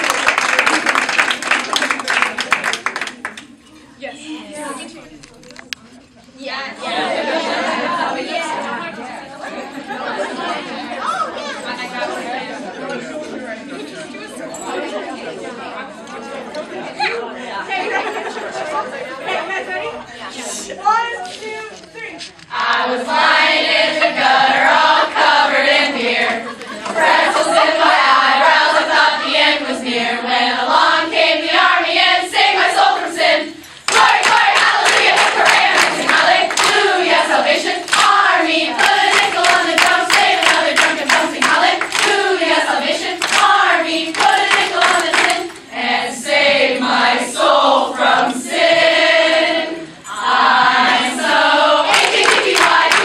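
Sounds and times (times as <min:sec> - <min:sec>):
hands clapping: 0:00.0 - 0:03.5, 0:33.8 - 0:37.0, 0:37.8 - 0:42.2, 0:43.1 - 0:45.6, 0:51.9 - 0:53.0
group singing together: 0:06.7 - 0:11.1, 0:22.5 - 0:53.0.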